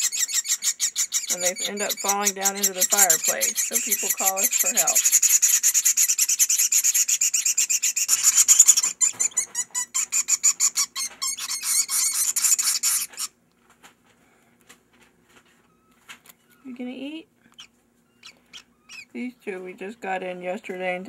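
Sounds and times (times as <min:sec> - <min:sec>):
nestlings rasping begging chatter: 0:00.0 - 0:13.4, 0:17.5 - 0:19.3.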